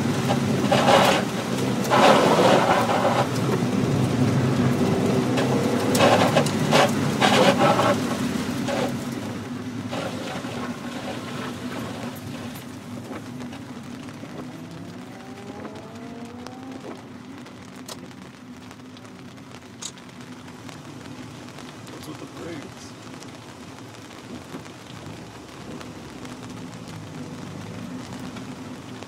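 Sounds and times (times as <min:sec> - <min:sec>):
car engine running: 0:00.0 - 0:29.0
rain and spray on car: 0:00.0 - 0:29.0
windscreen wipers swishing: 0:00.0 - 0:29.0.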